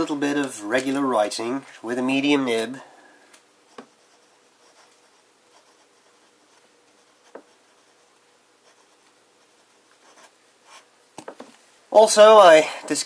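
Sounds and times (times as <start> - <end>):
pen nib scratching paper: 3.7 - 10.9.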